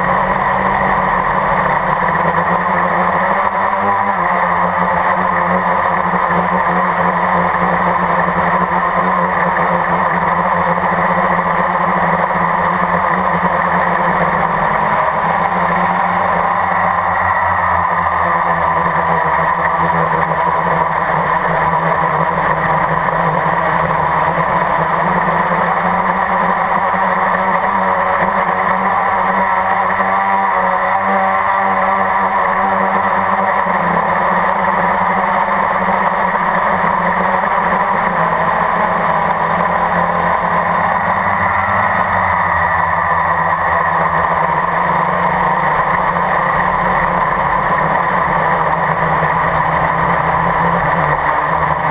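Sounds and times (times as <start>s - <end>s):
quadcopter motors droning: 0.0s - 51.9s.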